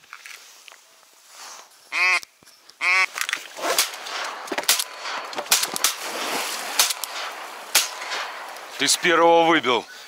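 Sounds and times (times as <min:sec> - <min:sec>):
shotgun shots: 0:03.6 - 0:09.7.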